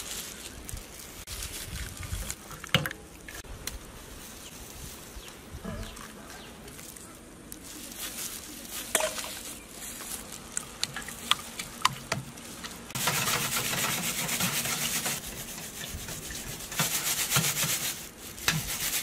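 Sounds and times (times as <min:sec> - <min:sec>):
whisk beating eggs: 0:13.0 - 0:19.0.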